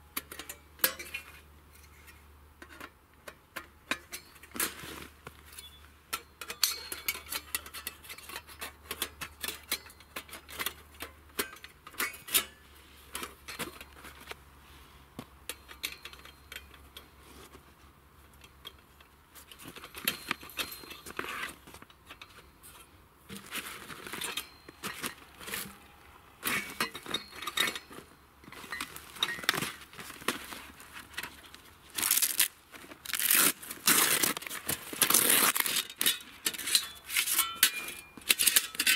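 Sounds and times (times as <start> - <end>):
metal grill parts clattering: 5.5 - 14.3, 19.5 - 30.2, 35.2 - 38.9.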